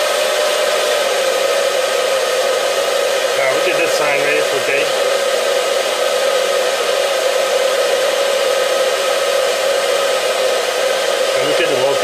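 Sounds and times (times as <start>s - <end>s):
hair dryer running: 0.0s - 12.0s.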